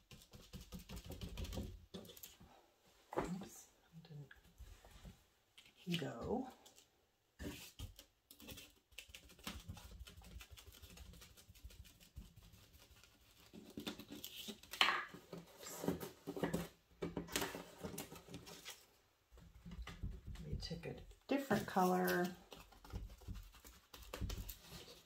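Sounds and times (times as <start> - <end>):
sponge dabbing paint on paper: 0.0 - 2.2, 7.4 - 14.7, 19.3 - 25.0
stencil rustling and tapping on paper: 0.0 - 2.3, 7.4 - 15.0, 19.3 - 25.0.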